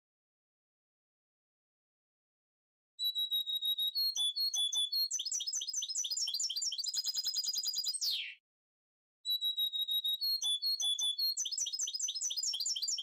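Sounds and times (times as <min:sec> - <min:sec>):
finch singing: 0:03.0 - 0:08.4, 0:09.3 - 0:13.0.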